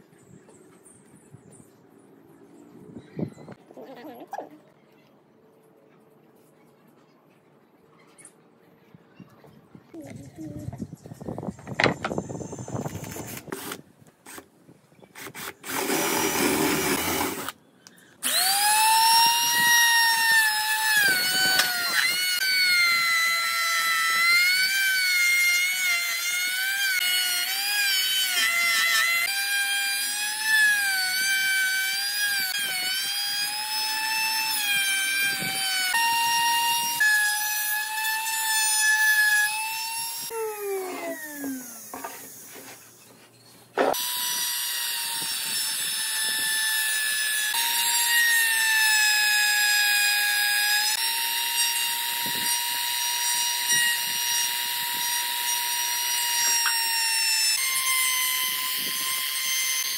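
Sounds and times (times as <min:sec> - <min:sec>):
router motor whine: 0:18.2 - 0:42.9, 0:43.8 - 0:59.9.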